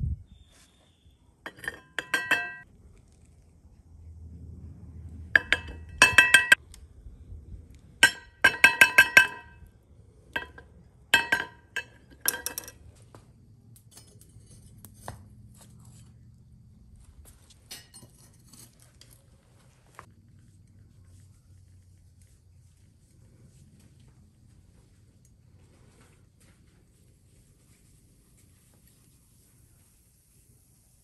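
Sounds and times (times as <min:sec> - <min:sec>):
metal spoon clinking on metal: 0:01.4 - 0:02.6, 0:05.4 - 0:06.6, 0:08.0 - 0:09.7, 0:10.4 - 0:12.8, 0:13.8 - 0:15.1, 0:17.7 - 0:19.1.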